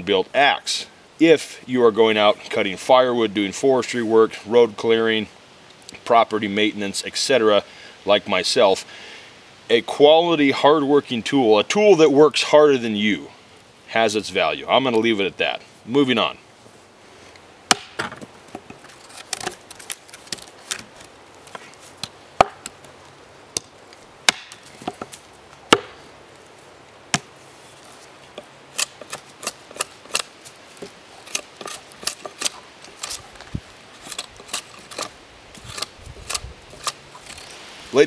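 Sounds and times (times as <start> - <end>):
axe chopping wood: 17.7 - 18.7, 22.0 - 22.8, 23.6 - 26.0, 27.1 - 27.4.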